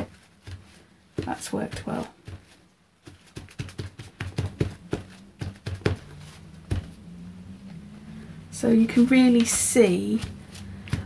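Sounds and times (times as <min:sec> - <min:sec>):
cloth tapping and rustling on tissue: 0:00.0 - 0:07.0.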